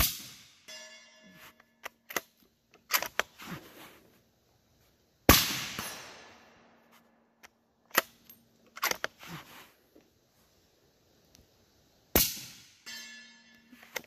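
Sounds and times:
suppressed rifle shot: 5.3 - 6.8.

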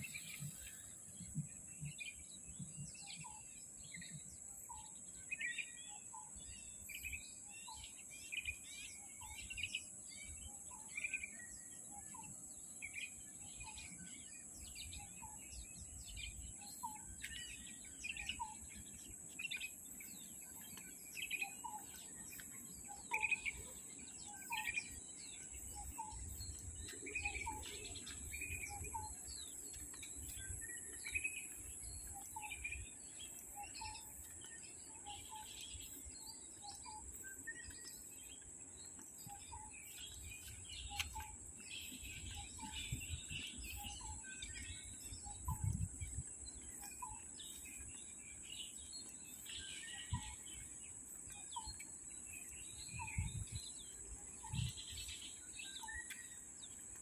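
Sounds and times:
birds chirping: 0.0 - 57.0
insects droning: 12.6 - 57.0.

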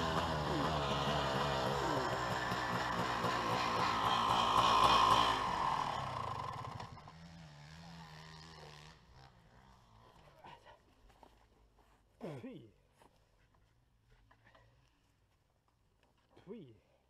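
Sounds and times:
dirt bike engine revving: 0.0 - 10.0.

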